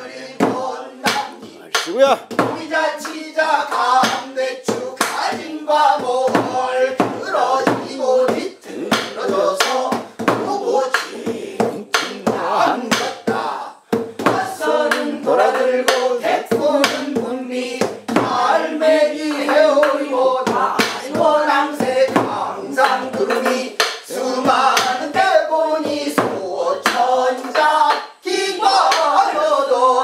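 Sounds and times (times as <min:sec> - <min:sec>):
group singing folk song: 0:00.0 - 0:30.0
sharp hand claps: 0:01.0 - 0:05.5, 0:08.9 - 0:10.0, 0:12.0 - 0:13.2, 0:22.8 - 0:25.0, 0:26.8 - 0:28.2, 0:28.8 - 0:29.2.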